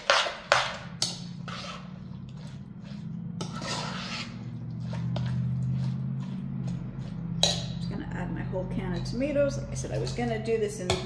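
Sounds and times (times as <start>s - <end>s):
wet squishing and scraping: 0.0s - 8.0s
low steady hum: 0.6s - 11.0s.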